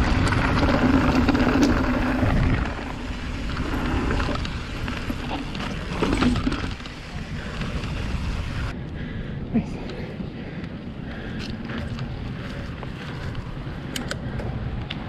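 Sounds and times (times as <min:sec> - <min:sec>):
bike tyres crunching on gravel: 0:00.0 - 0:08.7
bike rattling: 0:00.0 - 0:15.0.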